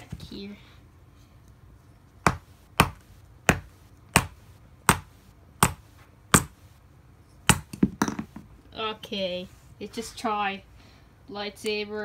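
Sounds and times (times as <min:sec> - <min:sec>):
toy hammer striking plastic: 0:02.2 - 0:06.6, 0:07.5 - 0:08.3.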